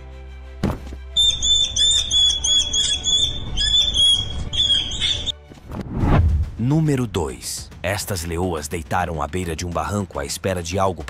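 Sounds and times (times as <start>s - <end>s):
rat squealing: 1.2s - 5.4s.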